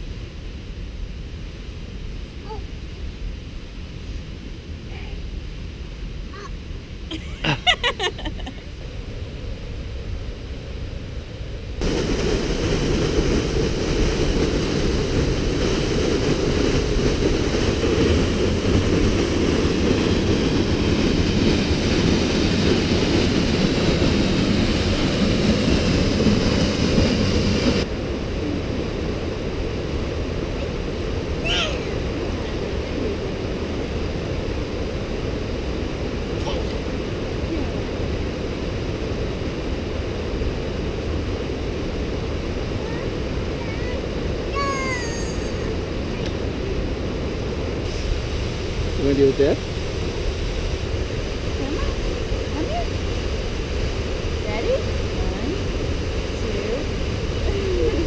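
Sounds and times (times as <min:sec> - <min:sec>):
creek water rushing: 0:11.8 - 0:58.0.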